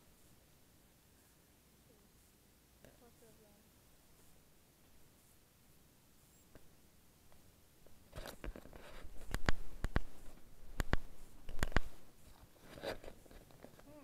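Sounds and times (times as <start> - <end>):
sharp clicks and knocks: 7.3 - 13.9.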